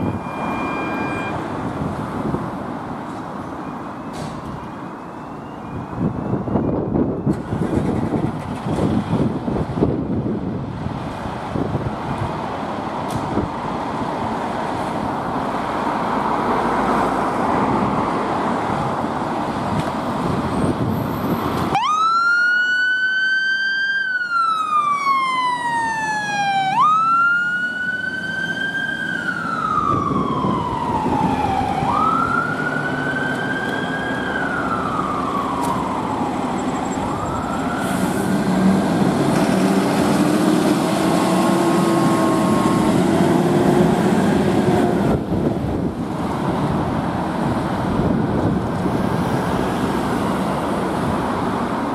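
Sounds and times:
siren wailing: 0.0 - 1.4, 21.7 - 38.3, 41.9 - 43.2
fire engine running: 0.0 - 51.9
second quieter siren: 21.7 - 38.4, 41.1 - 43.9.

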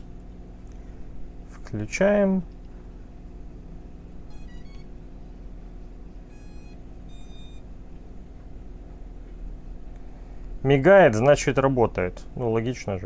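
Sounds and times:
drone startup beeps: 4.3 - 4.9, 6.3 - 7.6.

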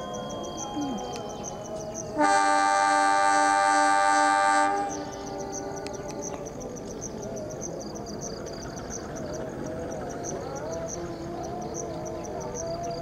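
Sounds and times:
insects chirping: 0.0 - 13.0
locomotive air horn: 2.2 - 5.8.

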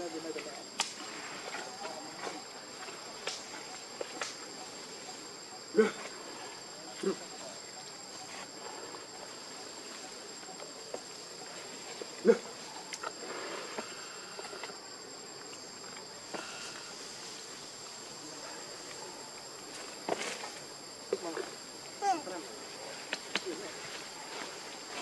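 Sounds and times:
high-pitched insect drone: 12.6 - 18.5.

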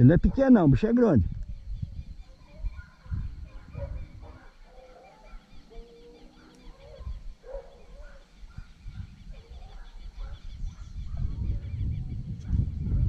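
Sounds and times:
small birds chirping: 0.0 - 13.0
dogs baying and barking: 2.2 - 11.6.

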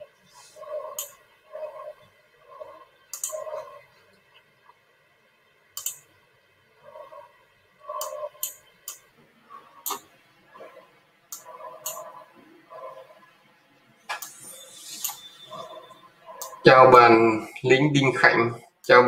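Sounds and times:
computer clicks: 3.1 - 3.7, 5.8 - 6.1, 7.9 - 9.1, 9.8 - 10.1, 11.3 - 12.2.

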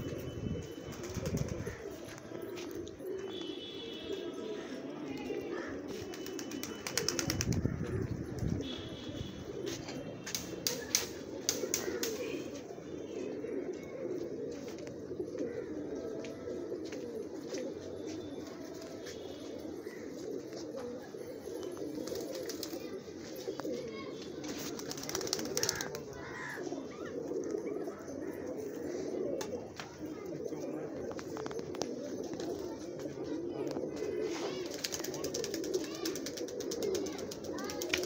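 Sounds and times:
pigeons cooing: 0.0 - 38.0.

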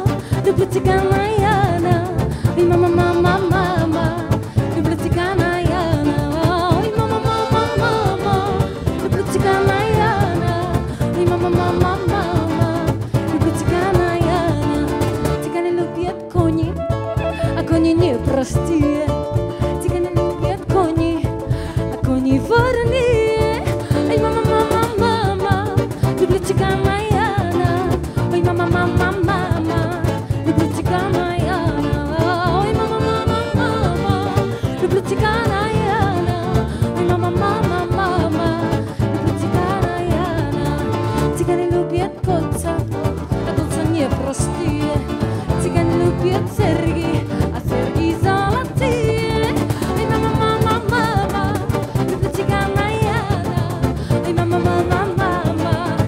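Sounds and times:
cajon beat: 0.0 - 56.0
guitar: 0.0 - 56.0
wavering lead melody: 2.7 - 19.4.

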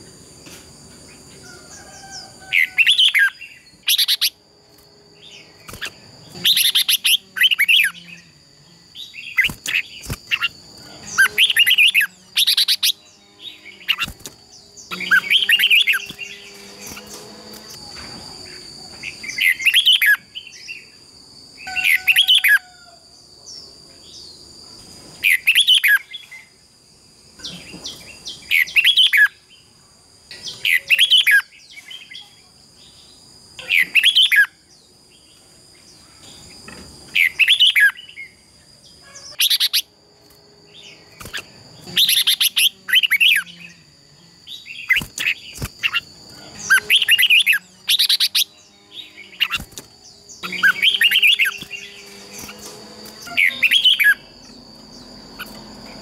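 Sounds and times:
birds singing: 1.1 - 24.6, 25.2 - 26.6, 27.4 - 56.0
high-pitched whine: 39.4 - 56.0.

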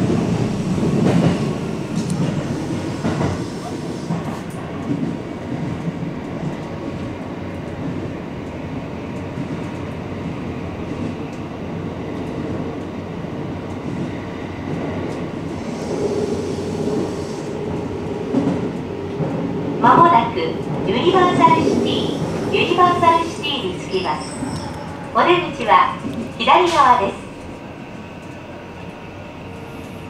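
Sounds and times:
train wheels rumbling on rail: 0.0 - 30.0
rail-joint clicks: 0.9 - 10.0, 17.7 - 27.5.

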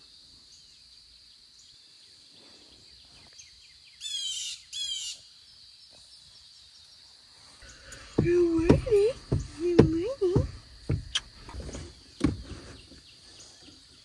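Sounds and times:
faint high-pitched hiss: 0.0 - 14.0
songbird singing falling notes: 7.6 - 14.0.

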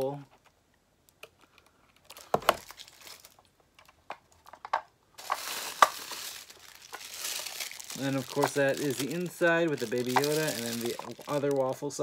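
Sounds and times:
packing material rustling: 1.9 - 4.6, 5.2 - 12.0.

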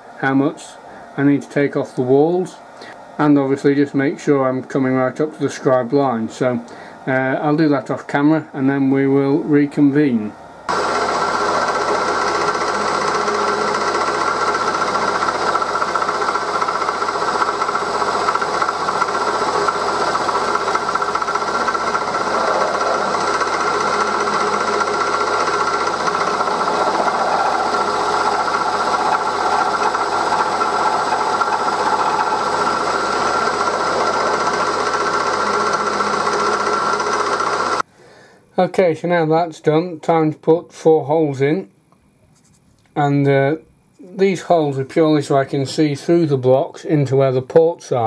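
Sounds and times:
constant whine: 10.4 - 37.8
milling machine cutting metal: 10.7 - 37.8.

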